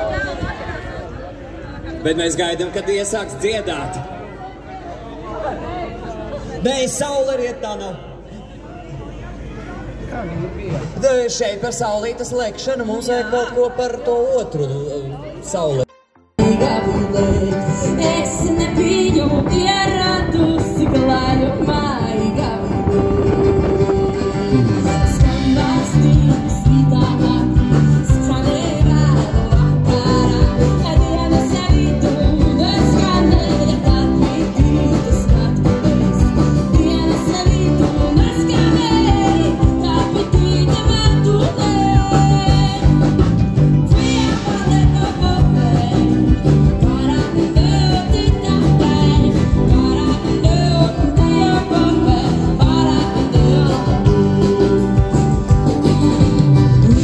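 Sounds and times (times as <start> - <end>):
song with singing and guitar: 16.4 - 57.0.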